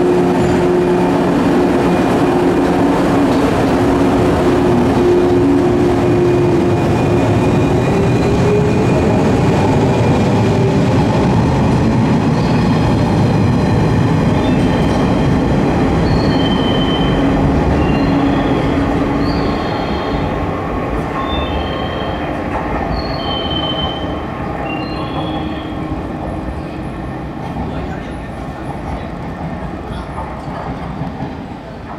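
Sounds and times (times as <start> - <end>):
high-pitched wheel squeals: 22.9 - 25.8.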